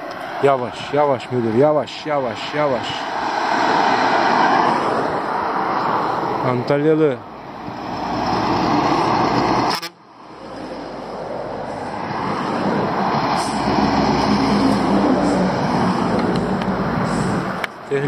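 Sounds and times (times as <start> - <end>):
lorry driving past: 7.4 - 17.7.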